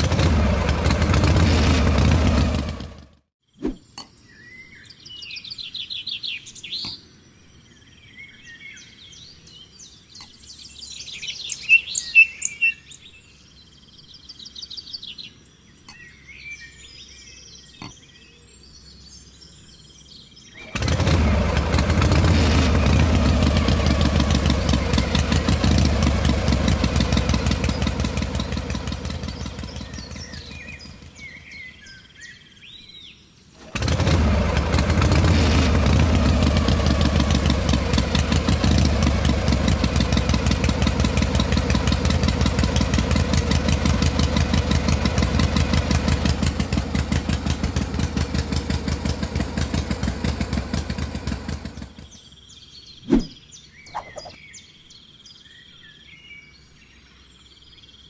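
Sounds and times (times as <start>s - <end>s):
small diesel engine puttering: 0.0s - 3.3s, 20.4s - 31.9s, 33.6s - 52.3s
birds chirping: 0.0s - 58.0s.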